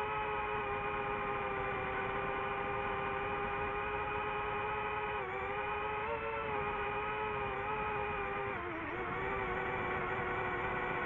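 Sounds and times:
drone propellers whining: 0:00.0 - 0:11.0.

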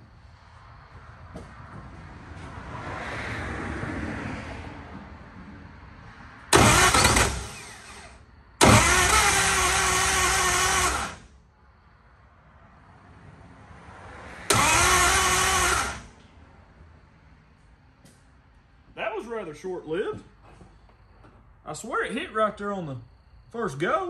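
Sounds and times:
engine catching briefly: 0:06.5 - 0:11.3, 0:14.5 - 0:16.2
engine starter cranking: 0:06.5 - 0:11.3, 0:14.5 - 0:16.2.

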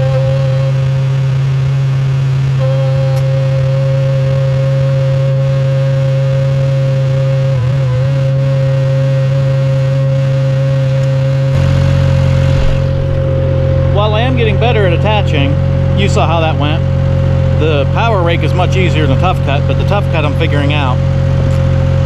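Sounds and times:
steady whine: 0:00.0 - 0:22.0
tractor engine hum: 0:10.0 - 0:22.0.

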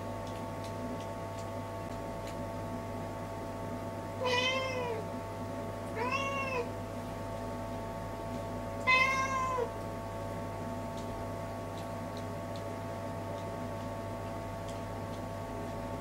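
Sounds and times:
cat meowing: 0:04.2 - 0:05.0, 0:06.0 - 0:06.7, 0:08.9 - 0:09.7.

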